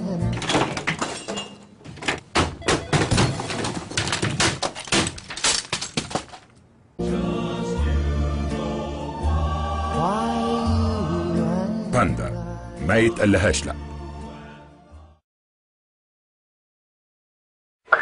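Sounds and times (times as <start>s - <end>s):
crashes and breaking: 0.4s - 1.6s, 2.8s - 6.6s.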